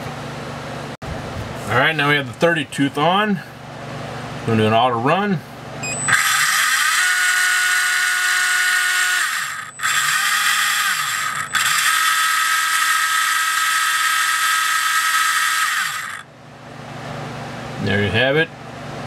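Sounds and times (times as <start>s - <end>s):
electric motor whine with gear noise: 6.1s - 16.3s.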